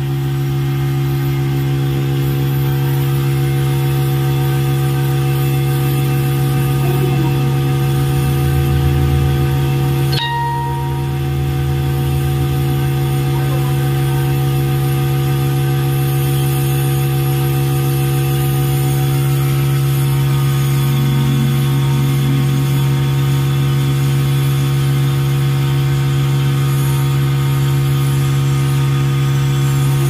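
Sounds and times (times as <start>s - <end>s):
steady machine hum: 0.0s - 30.0s.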